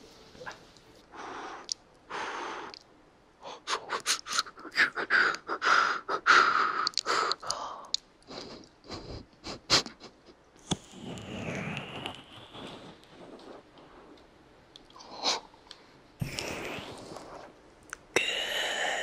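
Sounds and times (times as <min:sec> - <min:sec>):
wet mouth clicks and pops: 0:06.8 - 0:08.1
hiss: 0:10.7 - 0:13.4.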